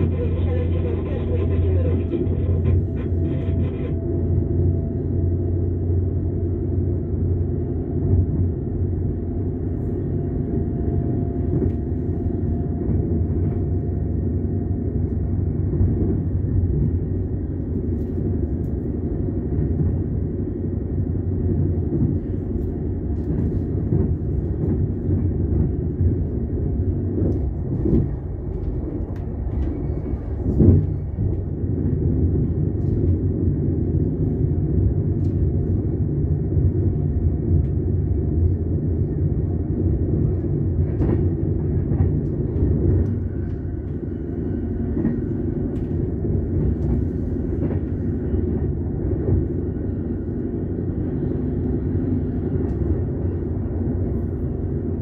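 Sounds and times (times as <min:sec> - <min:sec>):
train wheels rumbling on track: 0:00.0 - 0:55.0.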